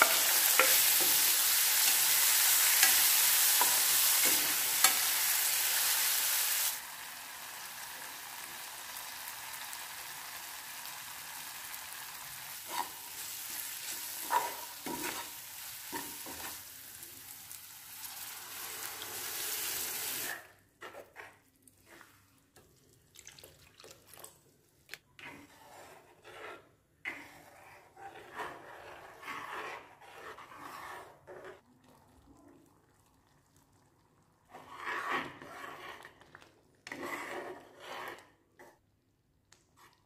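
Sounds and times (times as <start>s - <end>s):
spoon stirring thick lentils: 0.0s - 6.8s, 12.2s - 17.2s, 20.3s - 32.5s, 34.5s - 38.8s
frying sizzle: 0.0s - 20.4s.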